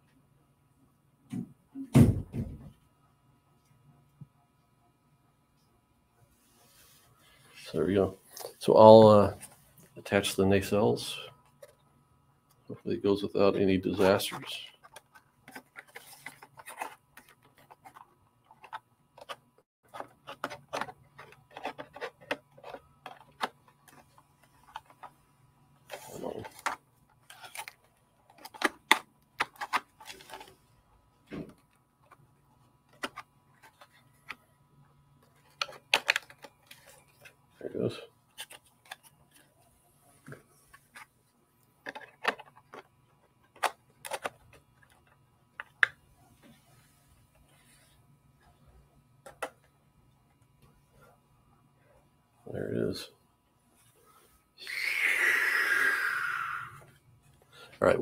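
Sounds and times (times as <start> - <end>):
plastic parts clicking and knocking: 14.7 - 25.2, 25.9 - 30.6, 31.2 - 34.5, 35.2 - 37.4, 41.8 - 46.0, 49.2 - 49.7.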